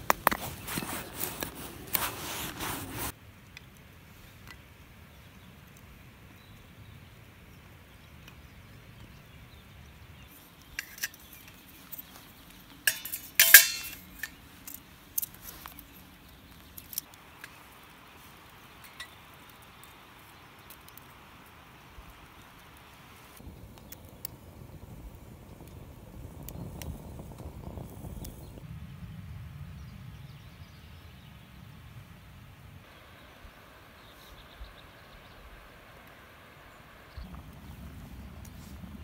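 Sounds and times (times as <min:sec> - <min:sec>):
metal pot and stove clinking: 0:10.8 - 0:11.7, 0:12.8 - 0:14.4.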